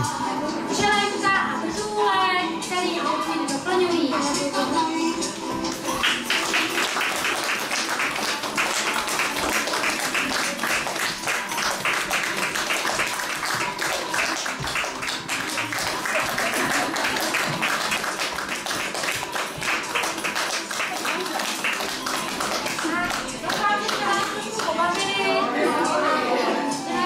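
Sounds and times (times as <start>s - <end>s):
music playing: 0.0s - 27.0s
audience clapping along: 5.6s - 25.2s.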